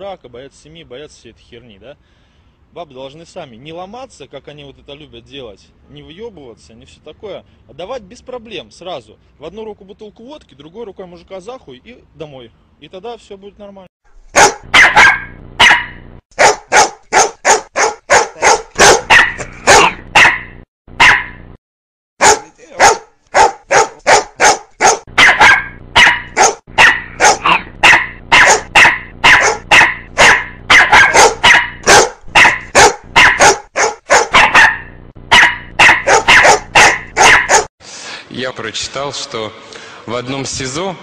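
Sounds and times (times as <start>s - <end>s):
dog barking: 14.3s - 21.4s, 22.2s - 37.7s.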